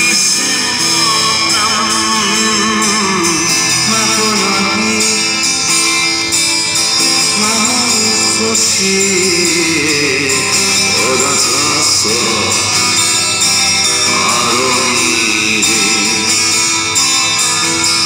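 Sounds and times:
man singing into a microphone: 0:00.0 - 0:06.3, 0:07.1 - 0:17.2
acoustic guitar strumming: 0:00.0 - 0:18.0.

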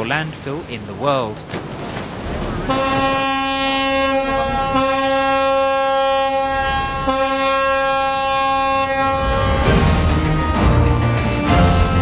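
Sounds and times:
tugboat horn blasts: 0:02.4 - 0:12.0.

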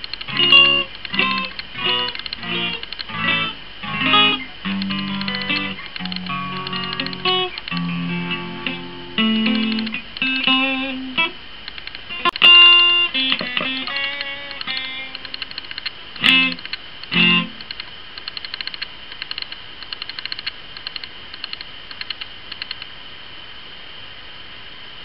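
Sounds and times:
rapid repetitive clicking: 0:00.0 - 0:03.2, 0:04.7 - 0:07.9, 0:09.2 - 0:10.6, 0:11.6 - 0:12.4, 0:13.3 - 0:22.9
electric guitar plucked notes: 0:00.3 - 0:11.4, 0:12.1 - 0:15.2, 0:16.2 - 0:17.6.

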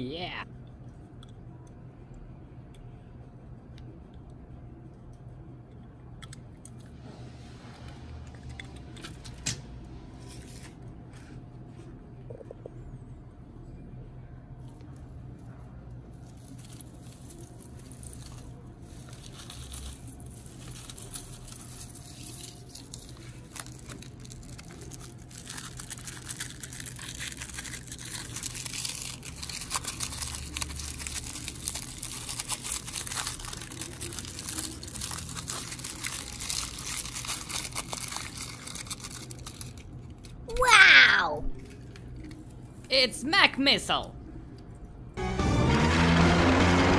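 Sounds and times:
aluminium foil crinkling: 0:16.1 - 0:40.4.

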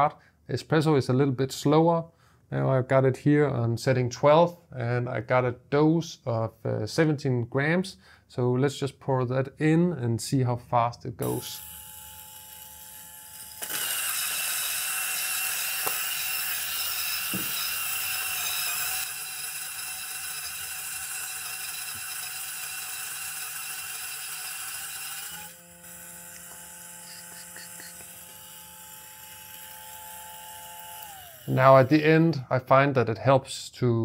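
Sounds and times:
grinder motor whine: 0:11.3 - 0:32.0
coffee beans grinding: 0:11.4 - 0:32.0.

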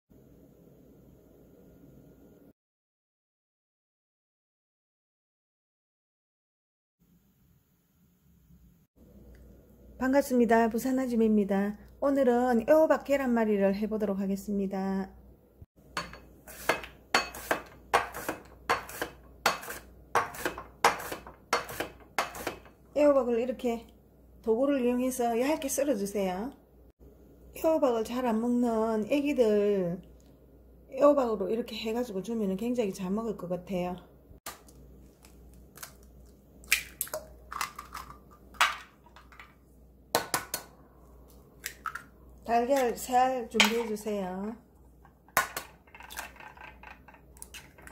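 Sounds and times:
zucchini sliced on mandoline: 0:16.5 - 0:22.6
eggshells cracking: 0:34.5 - 0:38.6.

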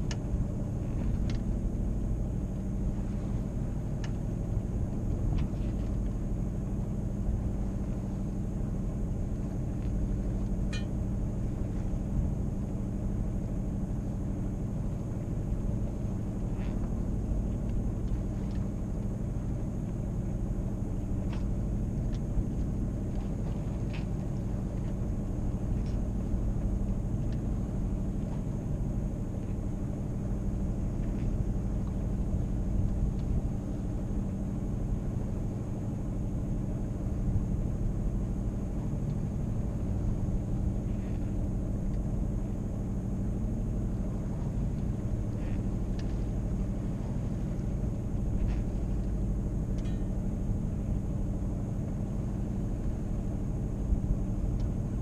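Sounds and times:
faint ticks: 0:00.0 - 0:00.2, 0:44.7 - 0:46.4, 0:48.4 - 0:50.1, 0:54.5 - 0:54.8
low rumble aboard a boat: 0:00.0 - 0:55.0
low tone drone: 0:00.0 - 0:55.0.

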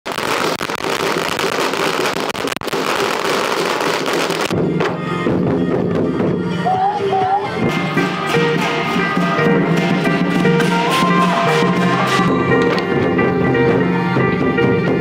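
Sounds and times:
firecrackers crackling: 0:00.0 - 0:05.0, 0:07.7 - 0:13.4
music: 0:04.5 - 0:15.0.

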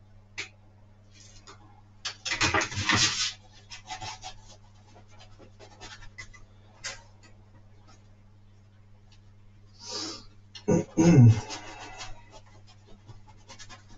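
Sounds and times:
faint low hum: 0:00.0 - 0:13.9
rustling scrape: 0:02.4 - 0:07.0.

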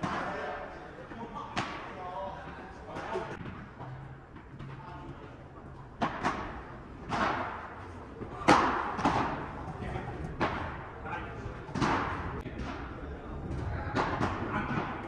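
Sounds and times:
ball bouncing off court and walls: 0:01.1 - 0:15.0
ball struck by rackets: 0:06.0 - 0:10.9, 0:11.7 - 0:13.0.

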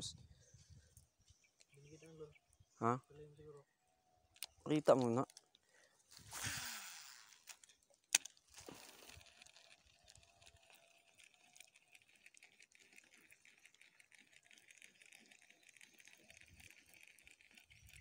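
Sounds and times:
fishing reel ticking: 0:04.9 - 0:18.0.

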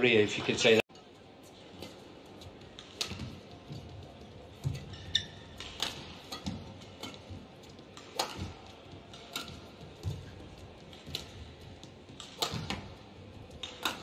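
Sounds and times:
rackets striking shuttlecock: 0:01.5 - 0:14.0
shoe squeaks on court floor: 0:04.7 - 0:05.9.

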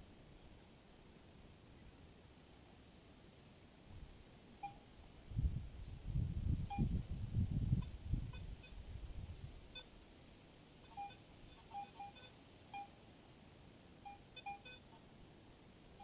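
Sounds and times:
metal detector beeps: 0:04.6 - 0:04.8, 0:06.7 - 0:06.9, 0:10.8 - 0:12.9, 0:14.0 - 0:14.9.

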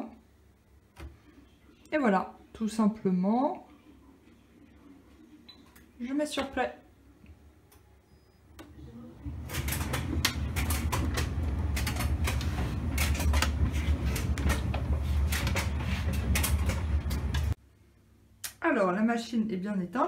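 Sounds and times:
tumble dryer drum humming: 0:08.6 - 0:17.6.

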